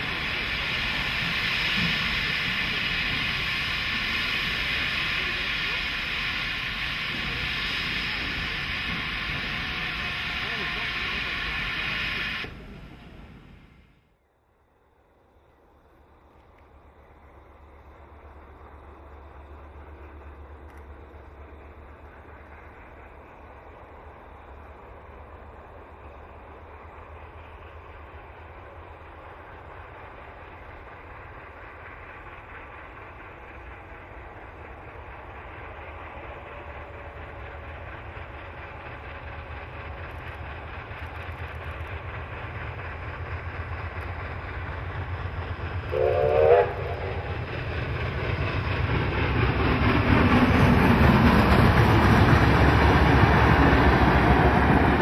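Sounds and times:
steam locomotive working: 0:00.0 - 0:55.0
steam whistle blast: 0:45.9 - 0:47.1.

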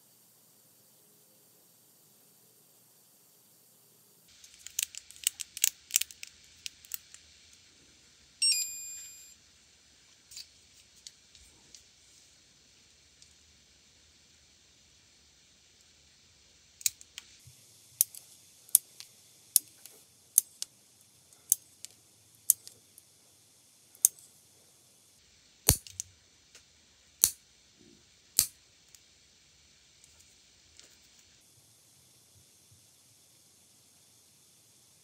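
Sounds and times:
nail clipper snipping: 0:25.7 - 0:26.0.

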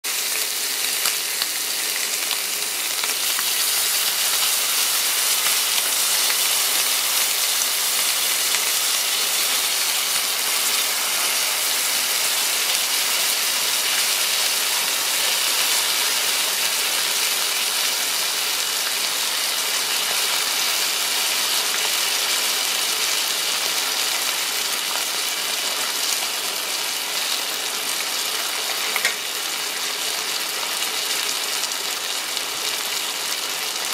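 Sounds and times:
steak sizzling on hot plate: 0:00.1 - 0:33.9.

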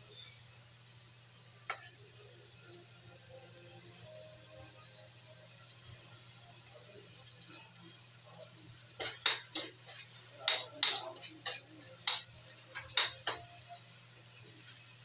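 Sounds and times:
metal spatula clinking on wok: 0:09.0 - 0:13.5.

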